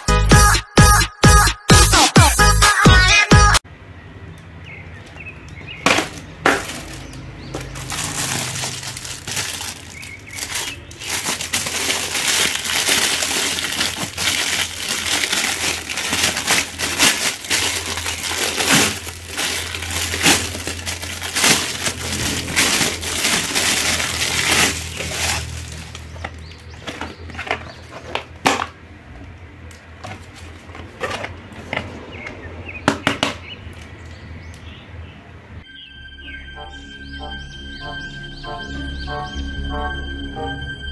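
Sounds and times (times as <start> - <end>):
plastic bag crinkling: 6.1 - 28.2.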